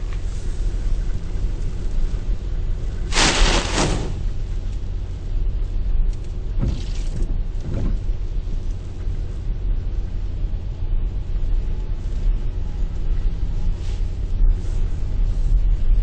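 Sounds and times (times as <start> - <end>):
crashing spray: 3.1 - 4.3.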